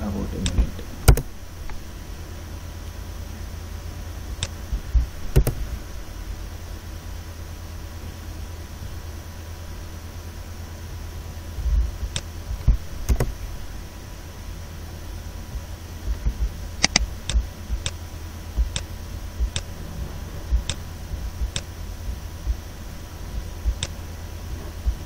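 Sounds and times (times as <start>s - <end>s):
steady low hum: 0.0s - 25.0s
computer mouse clicks: 5.3s - 5.6s, 12.1s - 13.4s, 16.8s - 18.0s, 23.7s - 24.0s.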